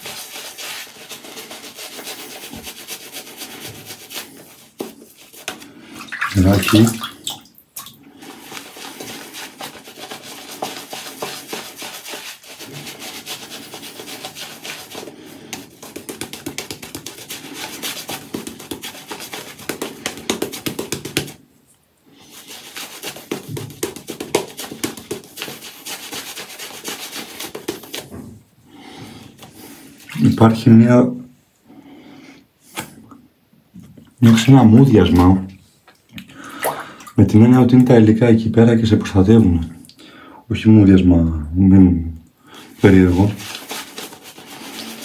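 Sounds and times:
shaving brush rubbing lather: 0.0s - 7.2s, 8.2s - 21.4s, 22.2s - 28.2s, 42.6s - 45.0s.

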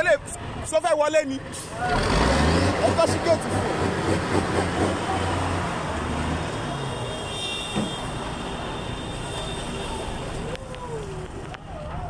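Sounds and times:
heavy truck engine rumbling: 0.0s - 12.0s
traffic noise: 0.0s - 12.0s.

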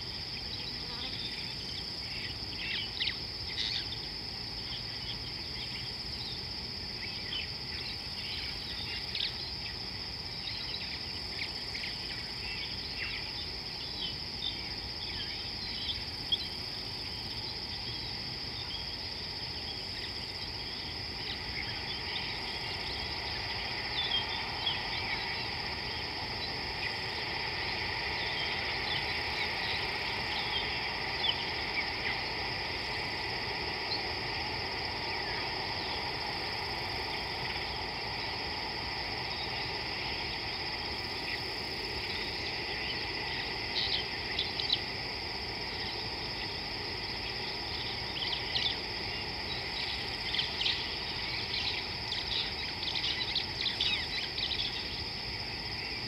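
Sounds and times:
high-pitched insect chorus: 0.0s - 56.0s.

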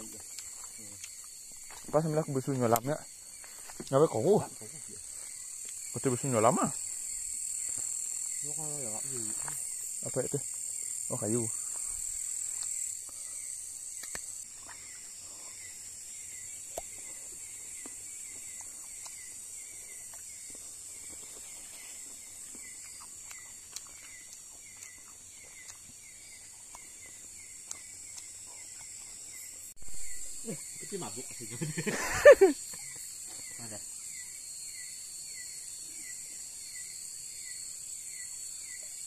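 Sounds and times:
insects buzzing hiss: 0.0s - 39.0s.

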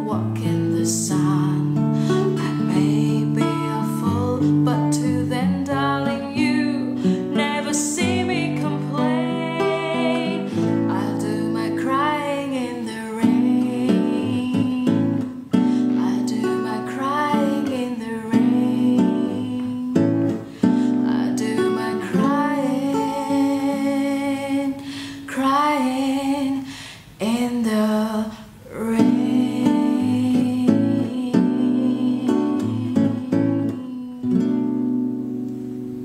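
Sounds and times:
woman singing: 0.0s - 35.0s
fingerpicked acoustic guitar: 0.0s - 36.0s.

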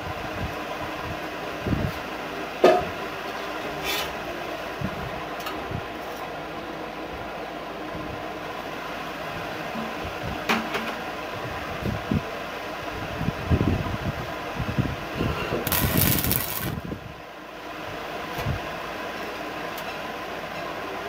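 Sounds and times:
welding arc crackling: 15.6s - 16.9s
steady hum: 15.7s - 17.6s.

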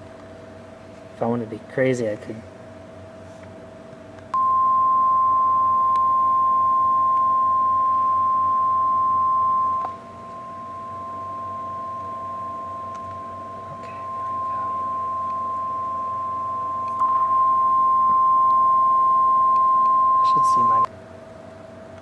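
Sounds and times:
steady sine-wave test tone: 4.3s - 20.9s.

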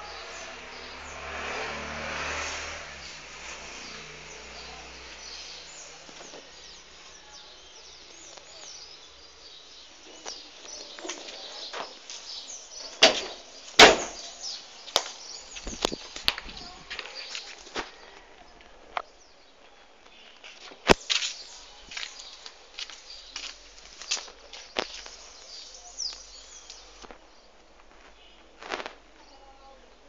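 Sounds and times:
birds chirping: 0.0s - 30.0s
sharp knocks: 13.0s - 14.2s.

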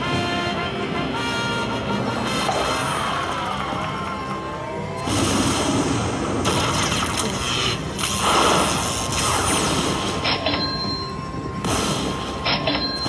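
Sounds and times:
electric zap: 5.0s - 10.5s, 11.6s - 12.7s
slot machine chiming tones: 9.2s - 13.0s.

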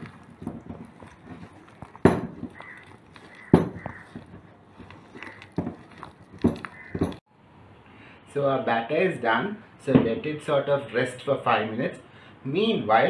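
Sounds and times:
hand mixing batter: 0.0s - 7.2s
steel bowl knocks: 3.3s - 4.4s.

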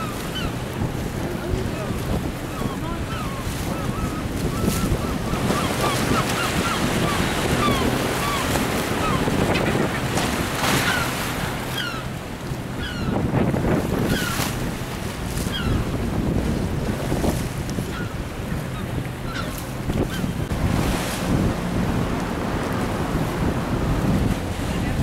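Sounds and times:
birds calling: 0.0s - 13.3s, 14.0s - 16.0s, 17.8s - 20.5s
boat engine humming: 0.0s - 25.0s
wind buffeting microphone: 0.0s - 25.0s.

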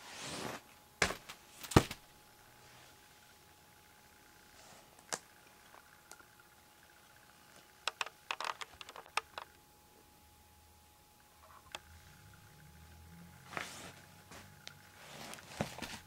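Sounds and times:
faint steady hum: 0.0s - 16.0s
handling clicks and taps: 7.8s - 9.6s.

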